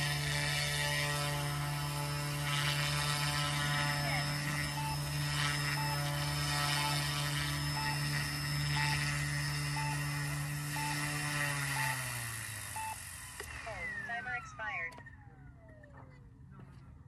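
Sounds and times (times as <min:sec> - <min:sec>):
toy helicopter rotor humming: 0:00.0 - 0:16.2
short electronic beep: 0:04.0 - 0:12.1.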